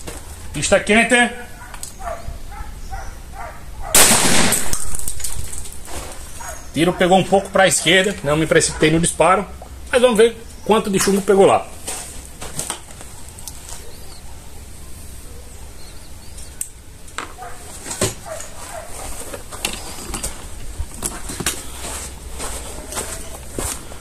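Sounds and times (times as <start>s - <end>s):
bird chirps: 1.5s - 3.9s, 13.2s - 16.7s
wind rumble on microphone: 1.5s - 5.6s
footsteps on gravel: 4.7s - 9.0s, 10.9s - 14.0s, 17.3s - 24.0s.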